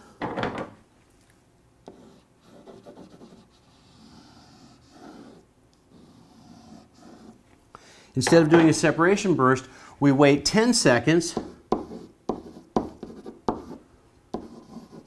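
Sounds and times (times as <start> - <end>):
person breathing: 0.0 - 0.2, 7.7 - 8.2, 9.6 - 10.0
pen scribbling on board: 1.9 - 7.4, 11.3 - 15.0.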